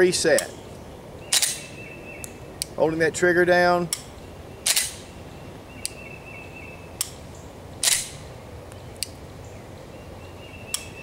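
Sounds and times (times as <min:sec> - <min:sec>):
pistol dry-fire clicks: 0:04.7 - 0:05.0, 0:07.8 - 0:08.2
pistol slide racking: 0:07.8 - 0:08.2.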